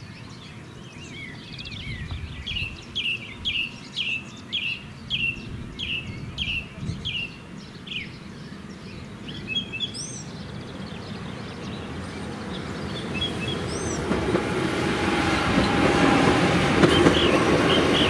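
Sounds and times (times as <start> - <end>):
songbird singing downward notes: 0.0 - 14.1.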